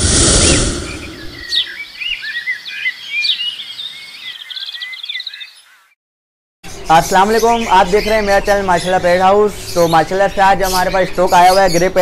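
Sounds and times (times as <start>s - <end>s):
low rumbling whoosh: 0.0s - 1.8s
birds chirping and whistling: 0.1s - 5.9s, 6.7s - 12.0s.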